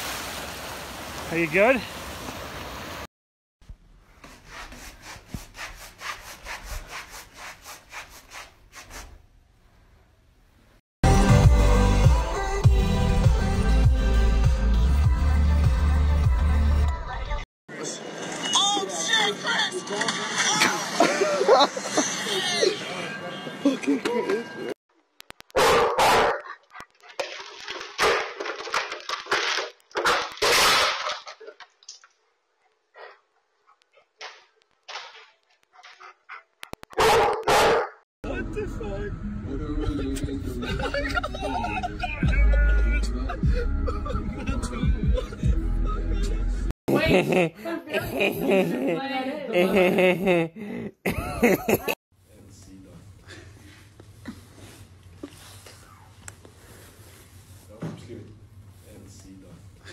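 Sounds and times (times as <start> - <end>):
large dog barking: 25.6 - 26.5, 37.0 - 38.0.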